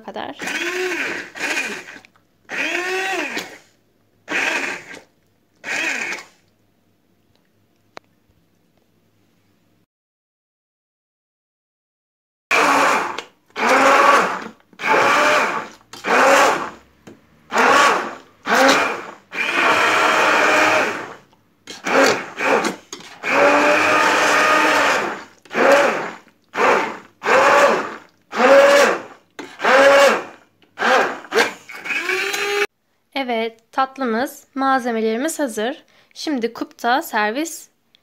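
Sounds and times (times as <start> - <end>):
stick blender motor whirring: 0.4 - 3.7, 4.3 - 6.4, 12.5 - 16.8, 17.5 - 32.7.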